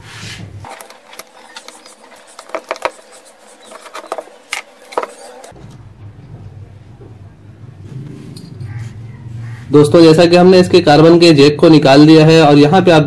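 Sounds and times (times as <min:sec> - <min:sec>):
screwdriver and metal parts clicking: 0:00.7 - 0:05.6.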